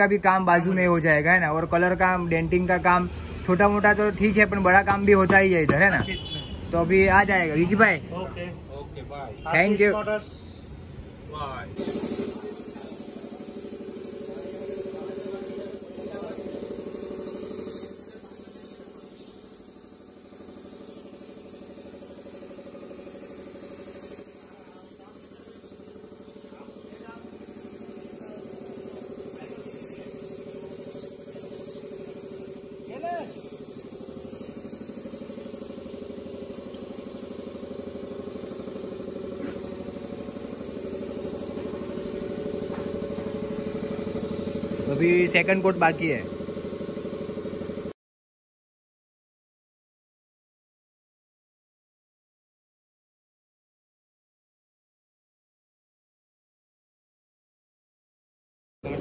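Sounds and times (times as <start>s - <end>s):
air compressor drone: 0.0s - 47.9s
small engine idling: 11.8s - 47.9s
spray gun spraying paint: 11.8s - 47.9s.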